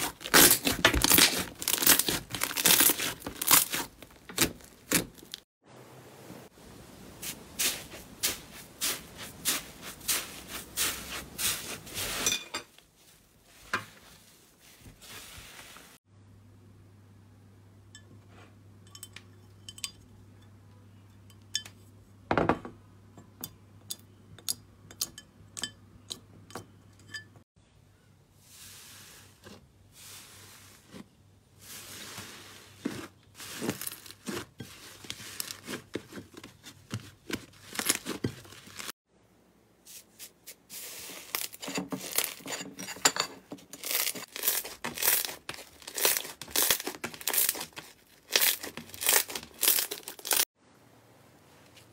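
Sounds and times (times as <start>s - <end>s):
slime crackling and popping: 0.0s - 5.4s, 43.8s - 50.4s
clinks against glass: 18.8s - 20.1s, 23.2s - 27.4s.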